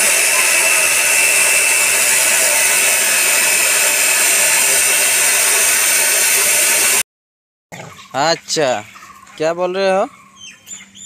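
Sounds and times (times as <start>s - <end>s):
chop saw grinding metal: 0.0s - 7.0s.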